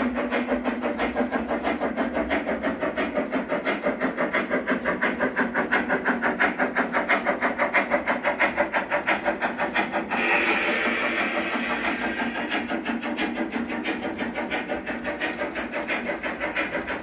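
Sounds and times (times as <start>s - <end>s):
model steam locomotive chuffing: 0.0s - 17.0s.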